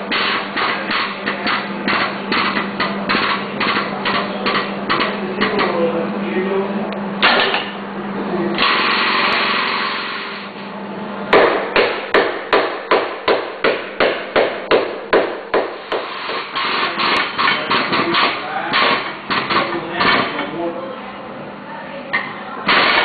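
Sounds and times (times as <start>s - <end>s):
hammer striking steel car body: 11.3s - 16.5s.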